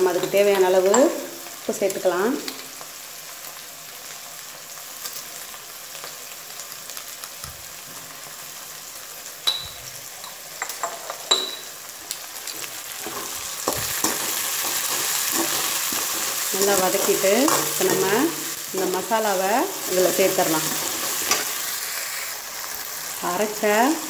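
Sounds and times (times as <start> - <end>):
onion sizzling in oil: 0.0 - 24.0
ceramic jar clink: 9.4 - 11.7.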